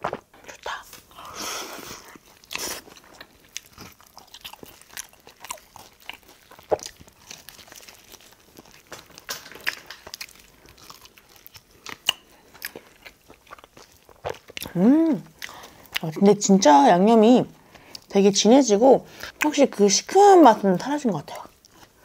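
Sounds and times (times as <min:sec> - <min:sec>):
crunchy chewing: 0:01.9 - 0:16.1.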